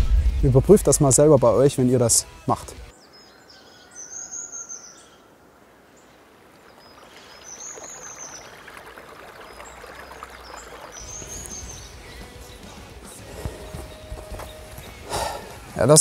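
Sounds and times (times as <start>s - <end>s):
stream trickling over stones: 6.2s - 12.0s.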